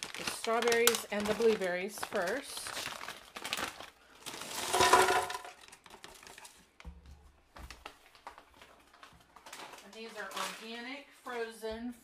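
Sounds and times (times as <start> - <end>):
frozen fruit clattering into blender jar: 4.3 - 6.4.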